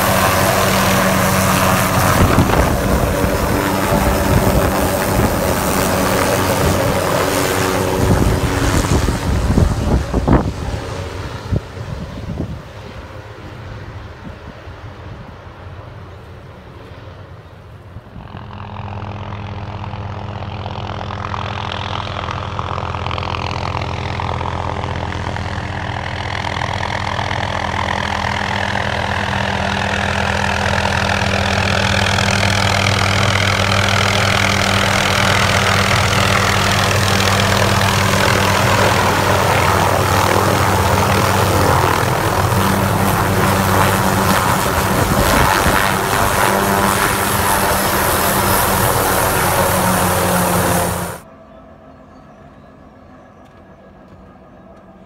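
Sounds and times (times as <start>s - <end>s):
helicopter rotor and turbine: 0.0s - 55.0s.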